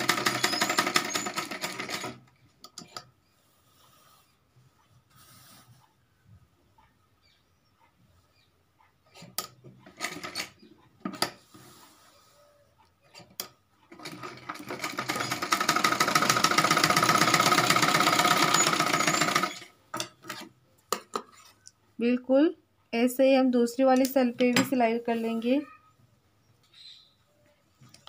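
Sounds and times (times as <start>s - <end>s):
sewing machine running: 0.0s - 2.2s, 9.8s - 10.5s, 13.9s - 19.7s.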